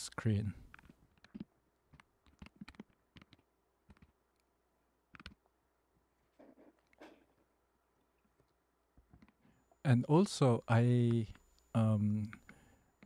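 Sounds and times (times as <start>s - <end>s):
computer keys typing: 5.1s - 5.4s.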